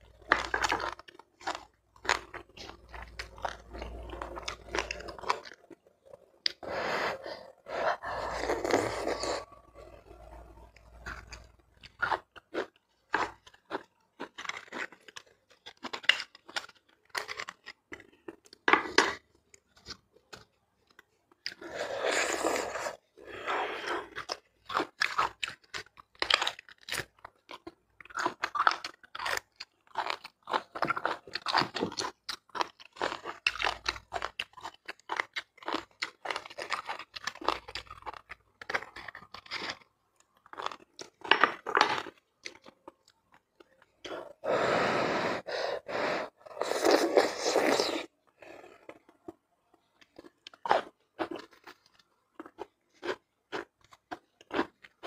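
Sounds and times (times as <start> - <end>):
chewing and lip smacking: 23.8 - 44.4.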